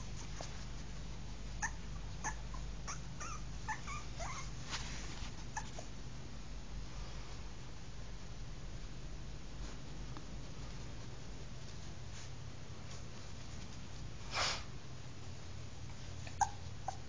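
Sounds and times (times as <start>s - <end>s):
puppy whimpering and yipping: 1.6s - 4.6s, 5.4s - 5.9s, 16.3s - 17.0s.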